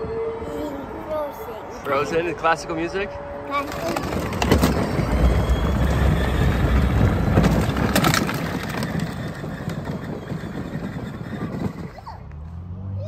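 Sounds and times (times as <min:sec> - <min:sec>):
plastic wheels rumbling over wooden planks: 0:03.6 - 0:12.0.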